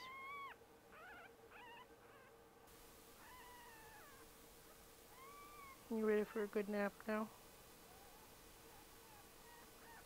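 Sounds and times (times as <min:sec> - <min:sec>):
fox kit crying: 0:00.0 - 0:01.9, 0:03.2 - 0:04.2, 0:05.1 - 0:05.8.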